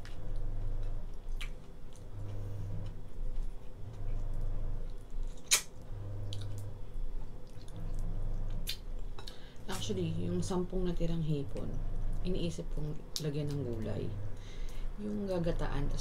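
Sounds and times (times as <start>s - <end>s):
chewing: 0.0s - 9.4s
low hum: 0.0s - 16.0s.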